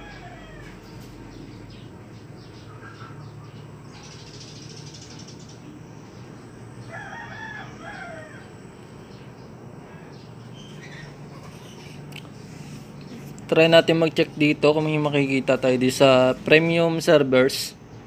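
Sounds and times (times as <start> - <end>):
rooster crowing: 0.0 - 1.2, 6.7 - 8.8
steady low hum: 0.0 - 18.0.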